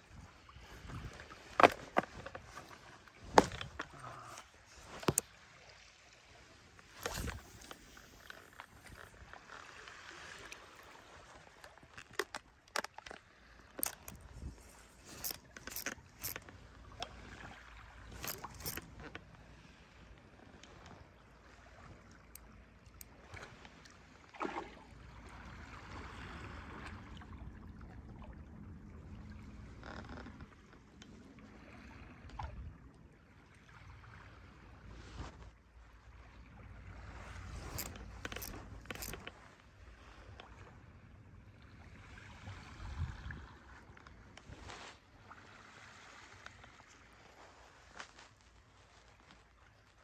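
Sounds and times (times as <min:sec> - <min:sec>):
seawater lapping at the shore: 0:00.0 - 0:50.0
short clicks and scrapes: 0:00.7 - 0:05.2, 0:06.8 - 0:10.6, 0:12.0 - 0:16.6, 0:18.1 - 0:19.2, 0:37.5 - 0:39.4.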